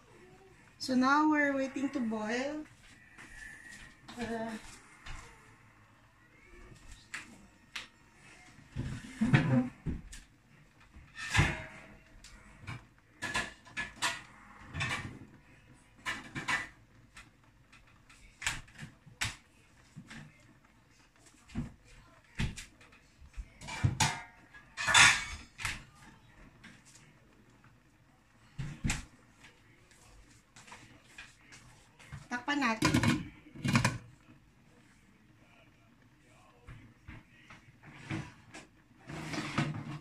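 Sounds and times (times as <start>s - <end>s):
kitchen knocks and clinks: 11.0s - 11.9s, 23.6s - 25.8s, 32.8s - 34.1s.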